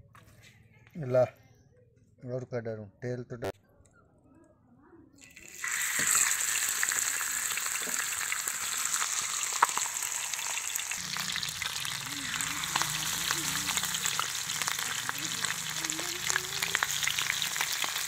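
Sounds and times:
hot oil sizzling in frying pan: 0:05.2 - 0:18.0.

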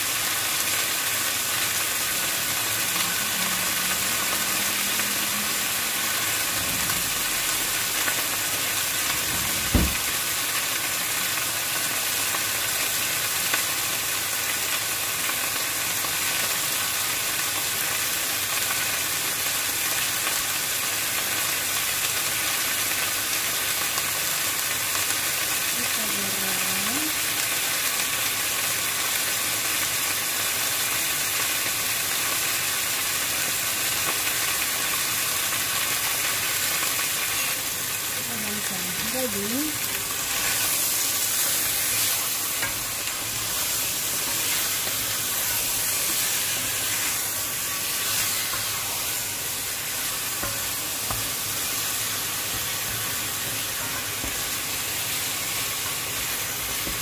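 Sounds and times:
meat sizzling in a pot: 0:00.0 - 0:57.0
dull thump: 0:09.4 - 0:10.0.

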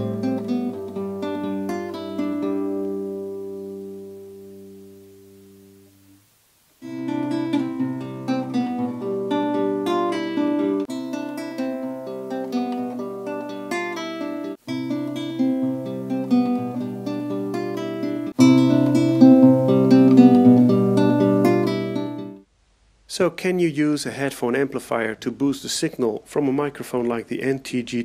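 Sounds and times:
classical guitar chord ringing: 0:00.0 - 0:06.2, 0:06.8 - 0:22.4
fingerpicked guitar passage: 0:00.0 - 0:06.2, 0:06.8 - 0:22.4.

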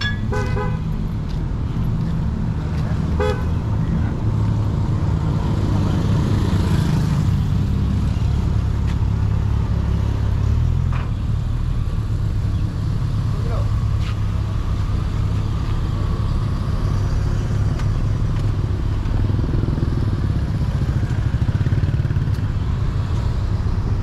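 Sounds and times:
vehicle horn toots: 0:00.0 - 0:00.8, 0:03.2 - 0:03.5
road traffic engines: 0:00.0 - 0:24.0.

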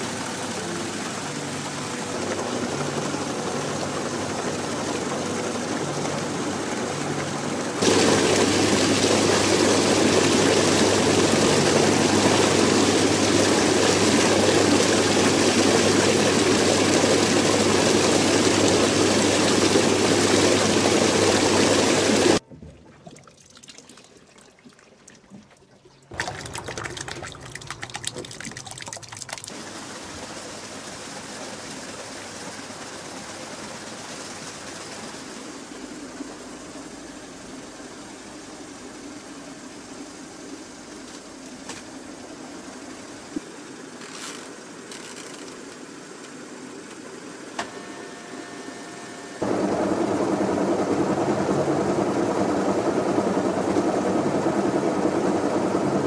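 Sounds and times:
water running into tub: 0:00.0 - 0:31.7
washing machine agitator churning: 0:00.0 - 0:37.6, 0:49.4 - 0:56.0.

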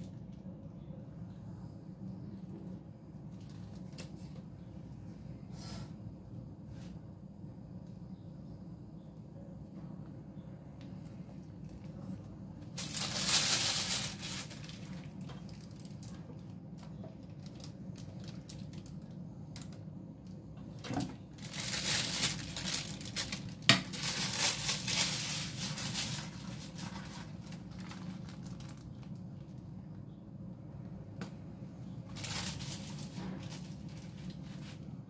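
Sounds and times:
plastic piping bag crinkling: 0:12.6 - 0:19.9, 0:21.1 - 0:29.6, 0:32.1 - 0:34.9.

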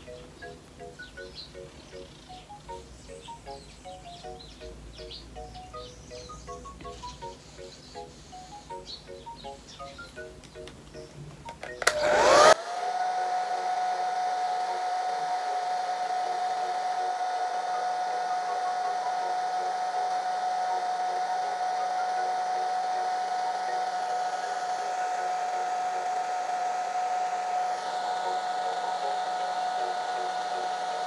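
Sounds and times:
hair dryer running: 0:11.8 - 0:31.0.

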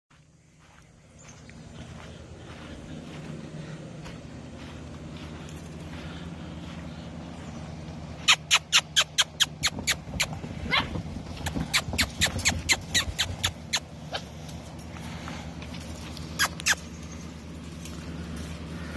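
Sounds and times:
puppies squealing and yipping: 0:08.2 - 0:14.5, 0:16.0 - 0:17.3.

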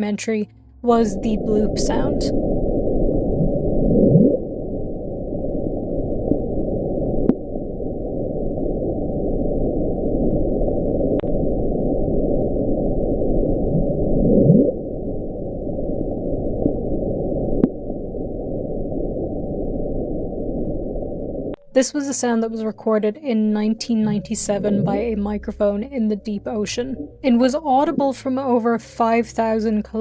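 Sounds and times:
rising pitch sweep: 0:00.4 - 0:08.7, 0:23.6 - 0:28.4
low underwater rushing noise: 0:00.5 - 0:21.8.

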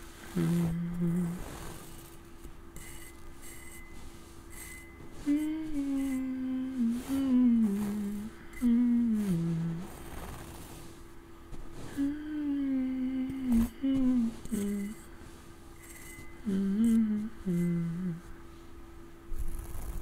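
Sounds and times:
man humming: 0:00.3 - 0:01.7, 0:05.2 - 0:10.0, 0:11.9 - 0:15.0, 0:16.4 - 0:18.3.

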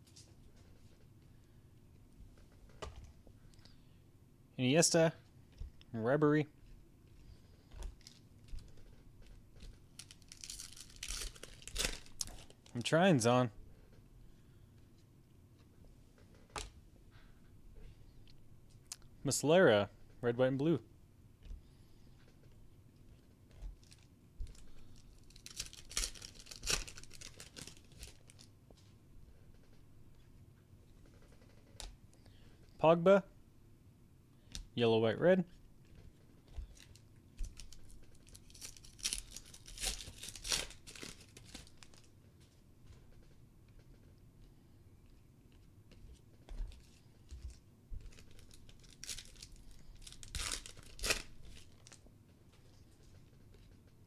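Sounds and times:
handling of cards: 0:07.5 - 0:12.9, 0:23.1 - 0:29.0, 0:35.9 - 0:42.4, 0:45.5 - 0:53.8
foil wrapper tearing and crinkling: 0:09.9 - 0:12.7, 0:23.8 - 0:28.5, 0:36.7 - 0:42.1, 0:48.1 - 0:52.0.

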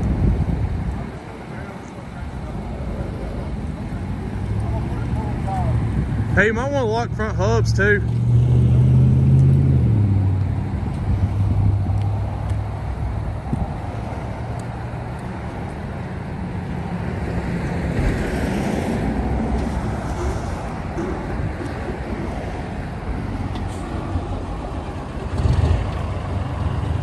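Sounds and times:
truck engine under load: 0:08.0 - 0:27.0.

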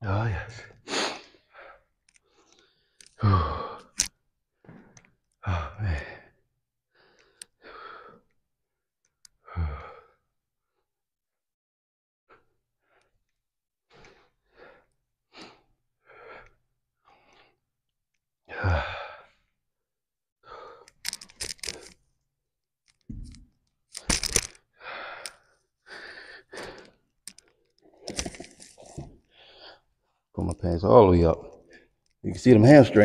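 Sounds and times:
man breathing hard: 0:00.5 - 0:04.1, 0:05.4 - 0:08.4, 0:09.4 - 0:10.3, 0:18.5 - 0:19.4, 0:20.4 - 0:22.0, 0:24.0 - 0:27.5, 0:28.1 - 0:29.9.

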